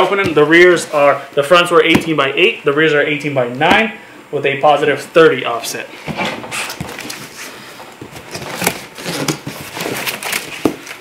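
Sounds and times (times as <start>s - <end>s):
cardboard scraping and rustling: 6.1s - 11.0s
cardboard box being opened: 8.2s - 10.7s.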